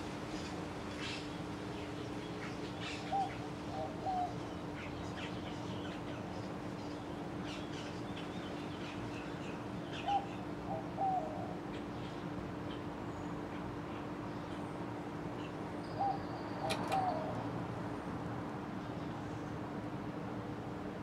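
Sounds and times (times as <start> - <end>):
bird calling: 15.8 - 17.4.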